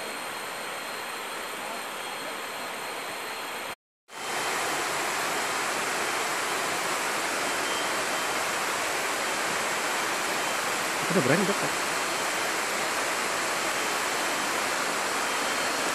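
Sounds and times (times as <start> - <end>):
running water rushing: 4.1 - 15.9.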